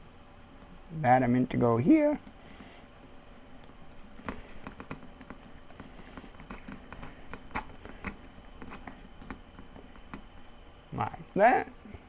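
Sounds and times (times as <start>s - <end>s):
plastic parts tapping: 3.9s - 10.3s.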